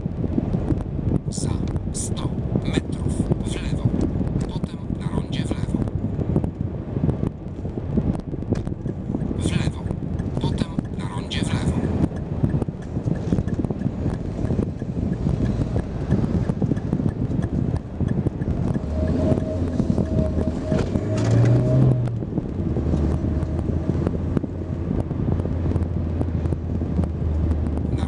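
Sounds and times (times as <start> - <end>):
car engine and tyre rumble: 0.0 - 28.0
wind noise: 0.0 - 28.0
low steady hum: 5.7 - 28.0.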